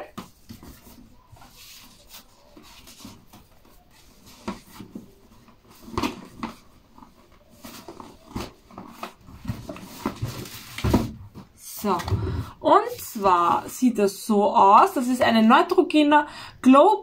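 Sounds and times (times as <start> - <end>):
ribbon rustling and rubbing: 0.2 - 10.8.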